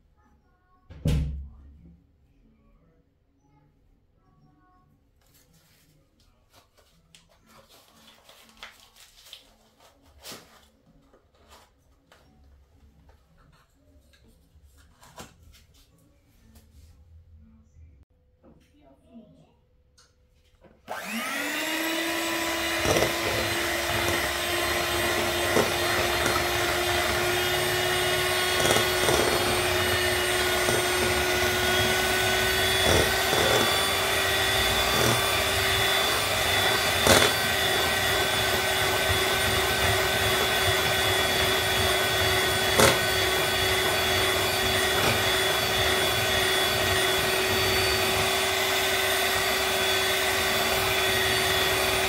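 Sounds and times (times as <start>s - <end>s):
electric hand mixer whine: 20.9s - 52.0s.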